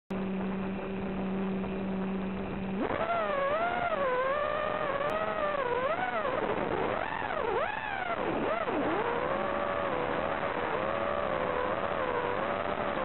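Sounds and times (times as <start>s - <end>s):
drone motors whining: 0.2s - 13.0s.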